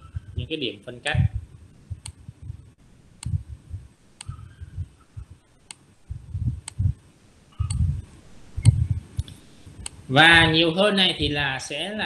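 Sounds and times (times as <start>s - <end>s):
computer mouse clicks: 4.2s - 4.6s.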